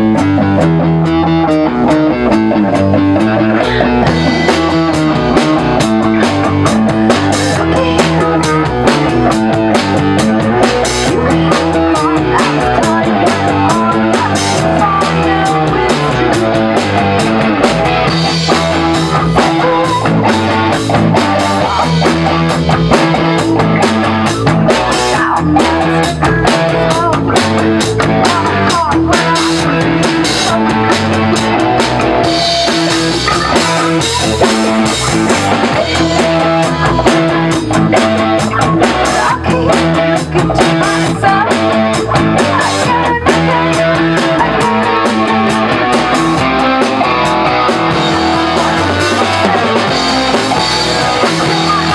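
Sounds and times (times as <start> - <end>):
drum kit beats: 0.0 - 51.9
electric guitar chords: 0.0 - 51.9.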